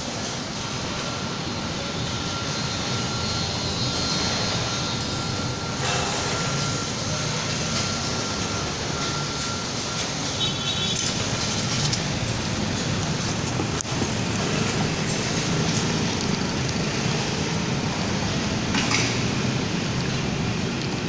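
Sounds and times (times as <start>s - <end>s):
city traffic roar: 0.0s - 21.0s
faint high whine: 0.0s - 21.0s.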